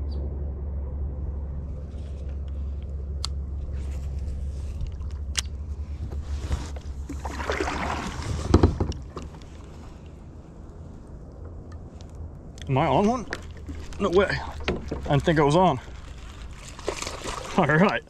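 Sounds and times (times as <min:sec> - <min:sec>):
steady low rumble: 0:00.0 - 0:18.0
rustling scrape with knocks: 0:08.1 - 0:09.9.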